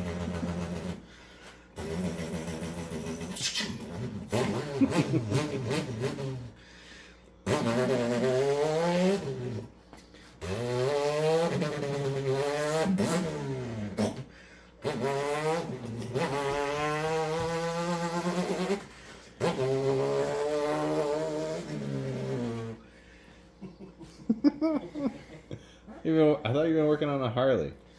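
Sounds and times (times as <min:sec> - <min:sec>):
man imitating motorbike engine: 0:00.0 - 0:01.1, 0:01.8 - 0:06.6, 0:07.4 - 0:09.7, 0:10.4 - 0:22.8.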